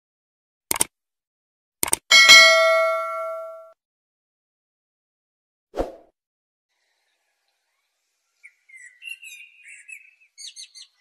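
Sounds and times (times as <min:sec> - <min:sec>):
blackbird singing: 0:06.8 - 0:11.0.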